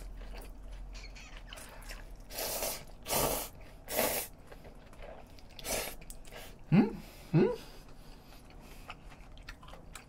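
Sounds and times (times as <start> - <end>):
person slurping noodles: 2.3 - 4.4, 5.6 - 6.5.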